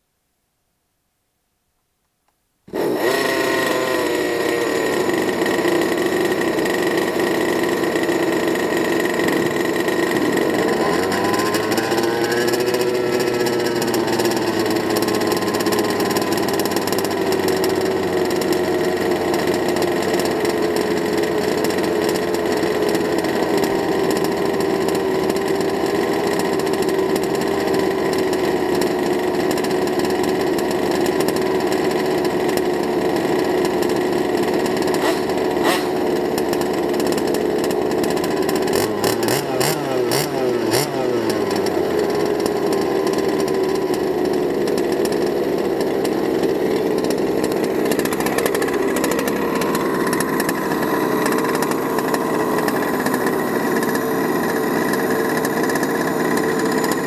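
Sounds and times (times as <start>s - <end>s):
two-stroke engines idling: 2.7s - 57.0s.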